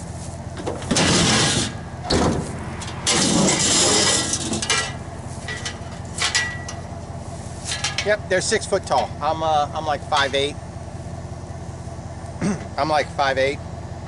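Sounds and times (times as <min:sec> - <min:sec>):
knocks and rattles: 0:00.6 - 0:06.9
metal ramp scraping: 0:00.6 - 0:08.2.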